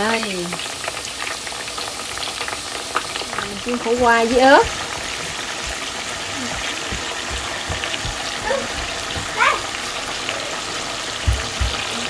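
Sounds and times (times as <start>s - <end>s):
hot oil sizzling and bubbling: 0.0s - 12.0s
soft low knocks: 6.4s - 9.8s.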